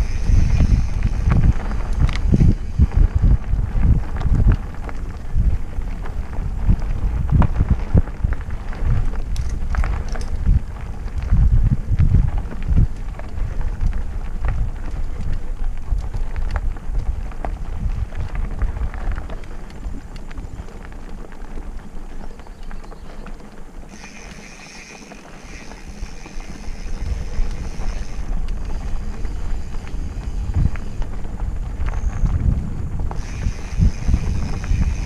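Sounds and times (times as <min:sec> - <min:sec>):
squeaky bike brakes squealing: 0:00.0 - 0:01.2, 0:23.9 - 0:31.0, 0:33.2 - 0:35.0
bike rattling over bumps: 0:00.0 - 0:35.0
tyres crunching over dirt trail: 0:00.0 - 0:35.0
wind rumbling on microphone: 0:00.0 - 0:35.0.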